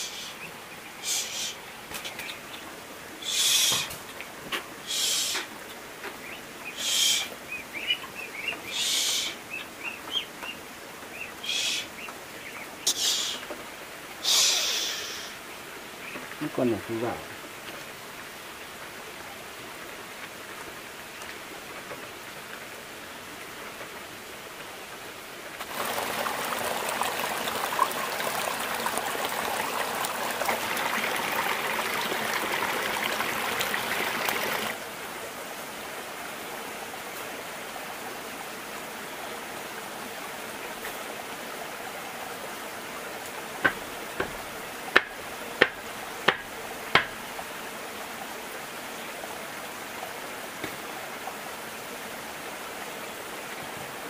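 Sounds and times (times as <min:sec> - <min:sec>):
running water rushing: 0:00.0 - 0:54.0
sharp knocks: 0:43.6 - 0:47.2.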